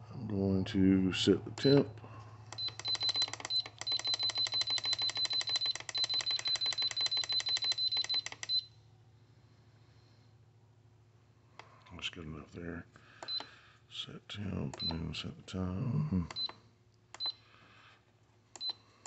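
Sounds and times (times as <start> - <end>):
control panel beeping rapidly: 1.5 - 1.9, 2.5 - 8.7.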